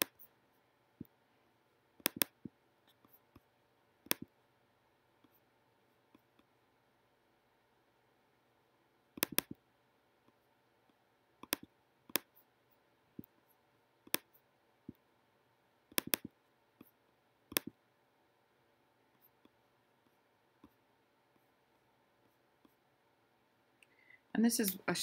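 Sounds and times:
computer mouse clicks: 0:02.0 - 0:04.4, 0:09.1 - 0:09.6, 0:10.2 - 0:12.5, 0:13.2 - 0:15.0, 0:15.9 - 0:17.8.

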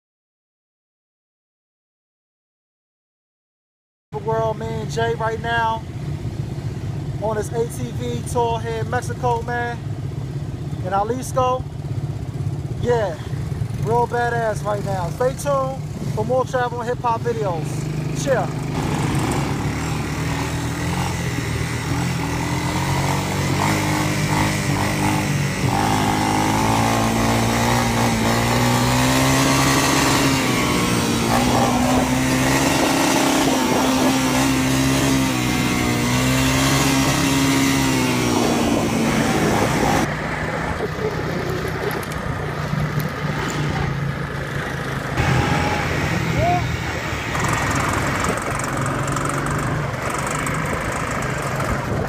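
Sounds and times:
quad bike engine running: 0:06.2 - 0:52.0.

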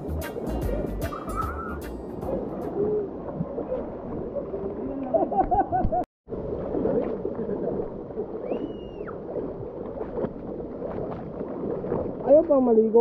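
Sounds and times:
water flowing and splashing: 0:00.0 - 0:13.0
whistle-like tone: 0:01.0 - 0:01.8, 0:08.4 - 0:09.2.

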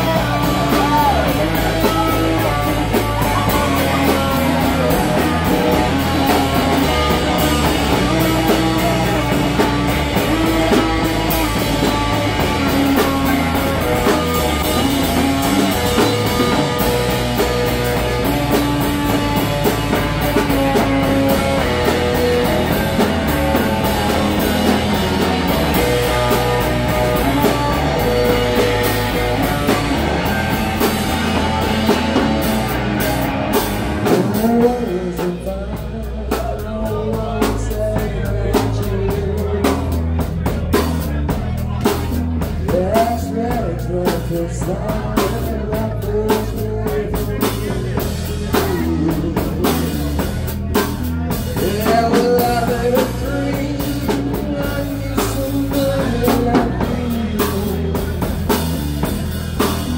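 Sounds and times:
bass guitar: 0:00.0 - 0:59.9
drum kit: 0:00.0 - 0:59.9
electric guitars: 0:00.0 - 0:59.9.

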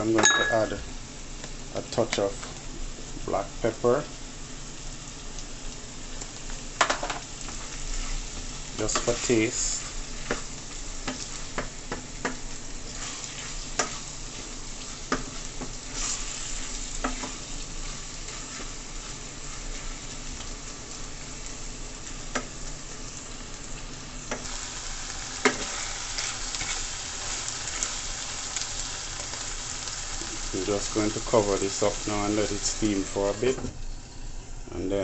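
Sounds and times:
food sizzling in a pan: 0:00.0 - 0:35.0
wooden spoon knocking on pan: 0:06.8 - 0:07.2.

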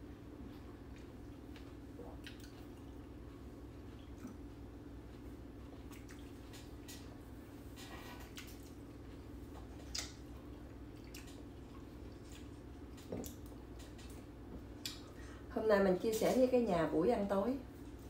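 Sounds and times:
steady low hum: 0:00.0 - 0:18.0
wet clicks and smacks of eating: 0:00.5 - 0:07.2, 0:08.2 - 0:15.2.

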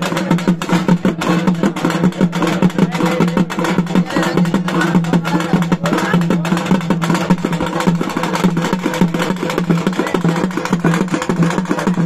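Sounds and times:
fast drumming: 0:00.0 - 0:12.0.

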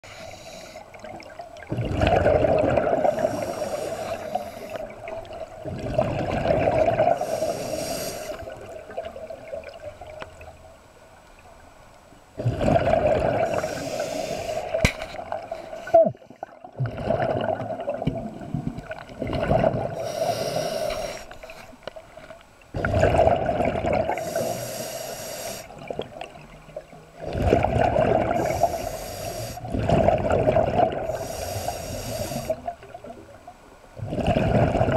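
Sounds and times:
diver breathing through regulator: 0:00.0 - 0:00.9, 0:02.9 - 0:05.0, 0:07.0 - 0:08.6, 0:13.4 - 0:14.8, 0:19.9 - 0:21.8, 0:24.1 - 0:25.8, 0:28.2 - 0:29.8, 0:31.0 - 0:32.7
bubbles rushing out: 0:01.6 - 0:03.3, 0:05.1 - 0:07.2, 0:12.4 - 0:13.7, 0:16.7 - 0:20.0, 0:22.8 - 0:24.2, 0:27.2 - 0:28.5, 0:29.7 - 0:31.1, 0:34.0 - 0:34.9.

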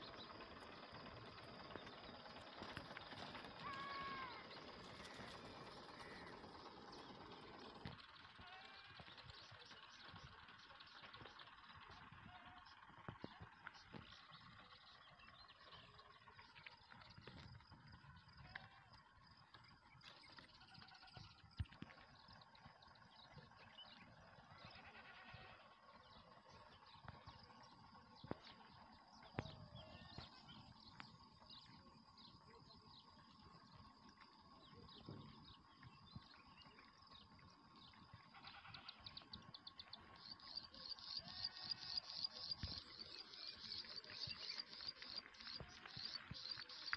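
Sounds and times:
faint insect-like drone: 0:00.0 - 0:46.9
faint animal calls: 0:03.2 - 0:07.2, 0:23.0 - 0:30.8, 0:38.0 - 0:39.6.

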